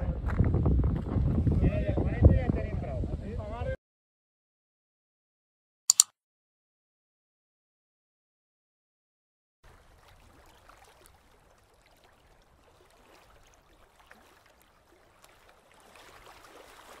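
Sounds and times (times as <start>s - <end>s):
small clicks: 5.9s - 6.1s
water lapping and trickling: 9.6s - 17.0s.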